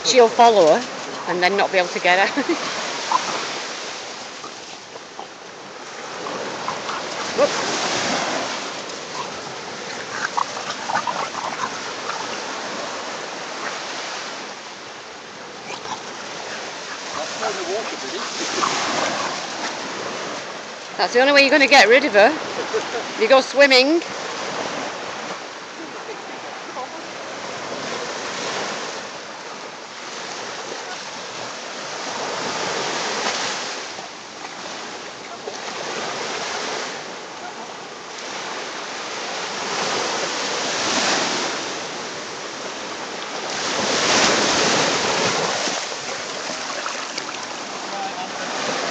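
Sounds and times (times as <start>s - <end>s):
surf washing: 0.0s - 48.9s
dogs yelping and growling: 2.4s - 14.6s, 15.3s - 20.6s.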